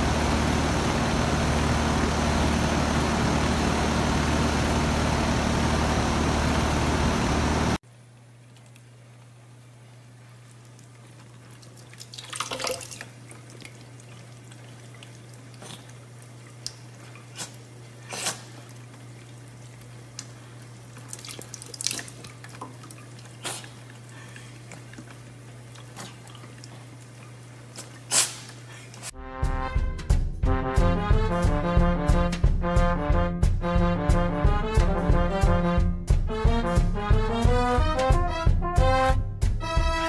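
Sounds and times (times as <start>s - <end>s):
short water splashes: 10.7s - 28.5s
music: 29.1s - 40.0s.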